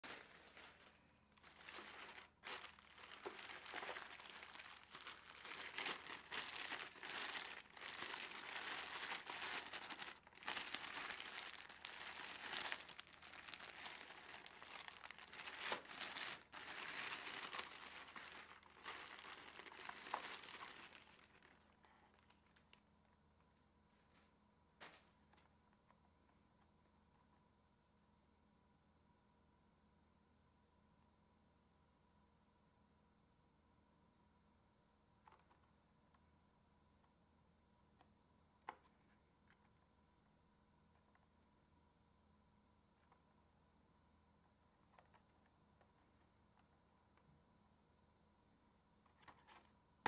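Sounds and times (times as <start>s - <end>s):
plastic bag crinkling: 0.0s - 22.8s.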